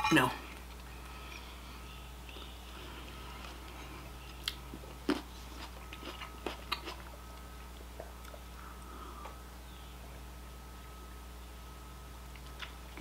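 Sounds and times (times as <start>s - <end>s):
close chewing mouth sounds: 2.2s - 9.4s.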